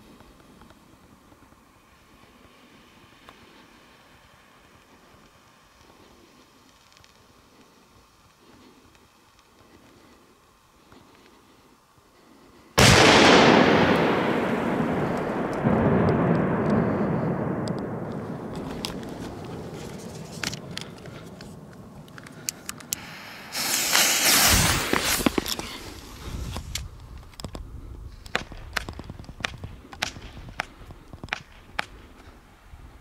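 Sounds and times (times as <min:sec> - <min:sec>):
firecracker exploding with loud bang: 0:12.8 - 0:20.5, 0:23.5 - 0:25.3
rumbling echo in valley: 0:12.8 - 0:32.4
jet torch lighter hissing: 0:22.8 - 0:26.8.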